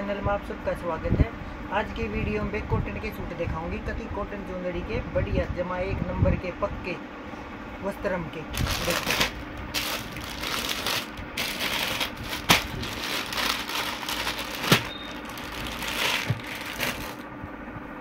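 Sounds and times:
plastic packaging crinkling: 8.6 - 17.3.

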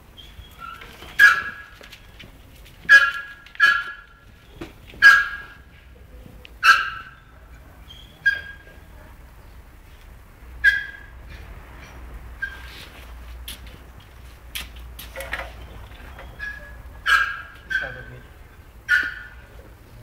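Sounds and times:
small dog yelping: 0.6 - 1.7, 2.9 - 4.1, 5.0 - 5.6, 6.6 - 7.2, 10.6 - 11.1, 16.4 - 18.2, 18.9 - 19.4.

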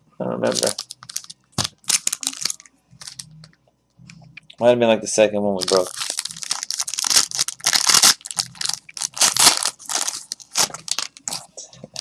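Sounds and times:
card packaging tearing and crinkling: 0.5 - 3.3, 5.6 - 12.0.

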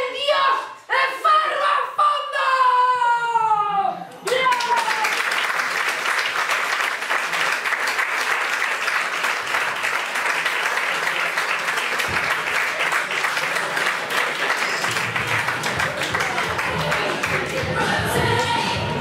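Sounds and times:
audience applauding: 4.3 - 18.0.

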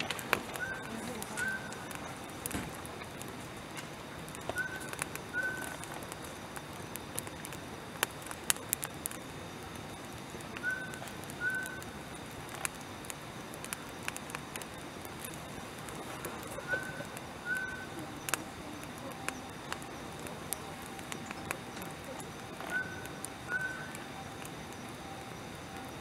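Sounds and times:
wood fire crackling: 0.0 - 26.0
bird call notes: 0.6 - 1.9, 4.5 - 5.7, 10.6 - 11.9, 16.6 - 19.5, 22.1 - 24.0.

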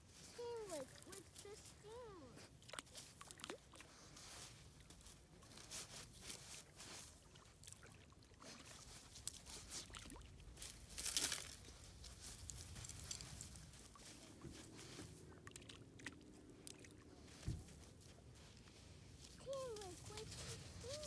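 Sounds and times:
dog pawing at sand: 17.2 - 21.0.

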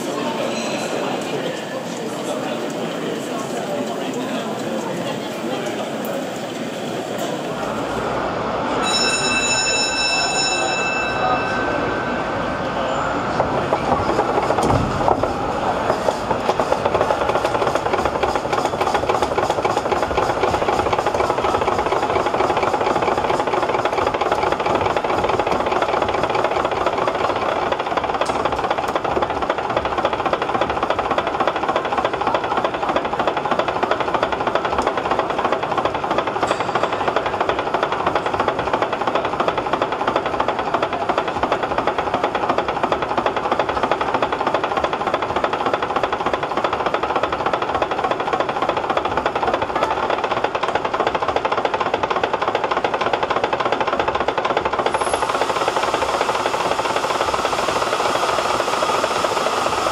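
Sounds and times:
steam engine gear clatter: 13.4 - 59.9.

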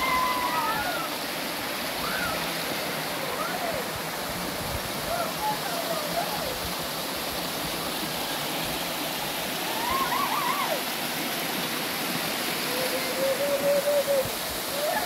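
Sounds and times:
running water: 0.0 - 15.0
short wavering call: 12.6 - 15.0.

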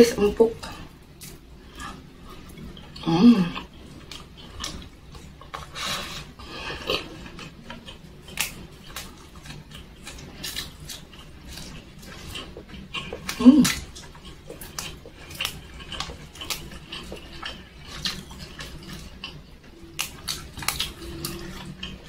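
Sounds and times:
person humming: 3.0 - 3.6, 13.3 - 13.8
mouth chewing wet smacking: 6.8 - 22.0.

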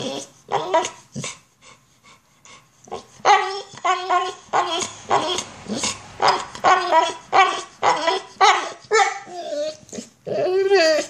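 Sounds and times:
dog whining cries: 0.0 - 1.3, 2.9 - 11.0.

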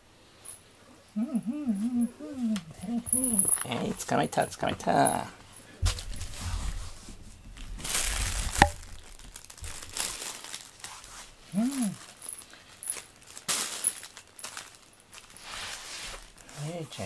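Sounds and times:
plastic bag crinkling: 7.6 - 17.0.

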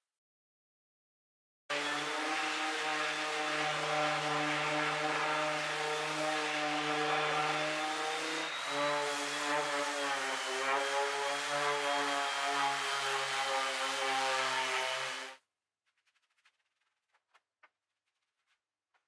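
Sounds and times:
orbital sander on wood: 1.7 - 15.4.

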